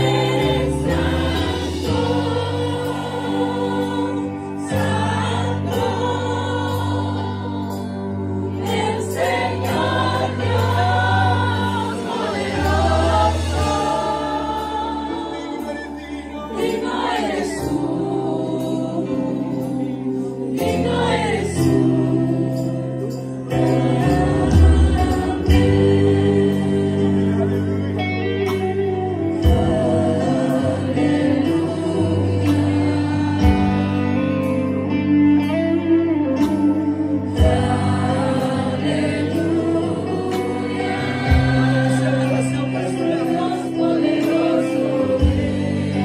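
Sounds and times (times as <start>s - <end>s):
women singing together: 0.0s - 27.6s, 29.4s - 34.2s, 37.4s - 46.0s
electric guitar: 0.0s - 46.0s.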